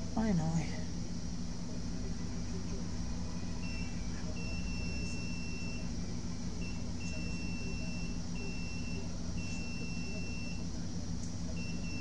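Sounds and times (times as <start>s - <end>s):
steady low hum: 0.0s - 12.0s
multimeter beeping: 3.6s - 5.9s, 6.6s - 10.6s, 11.6s - 12.0s.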